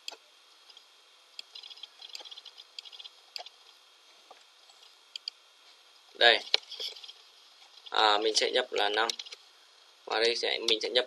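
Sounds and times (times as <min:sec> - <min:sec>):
computer mouse clicks: 0:01.4 - 0:03.5, 0:05.1 - 0:05.4.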